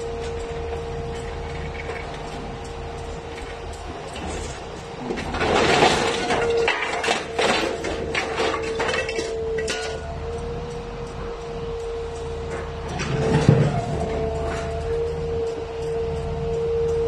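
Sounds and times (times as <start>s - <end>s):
steady hum: 0.0s - 17.0s
scrap metal clanking and rattling: 0.2s - 10.4s, 12.4s - 15.2s.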